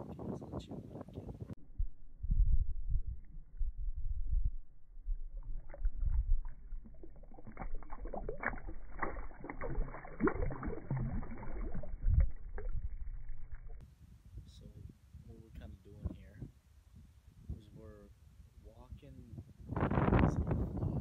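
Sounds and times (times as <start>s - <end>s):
low thumps in water: 5.1s - 13.8s
water dripping: 5.2s - 13.8s
water splashing and sloshing: 5.2s - 13.8s.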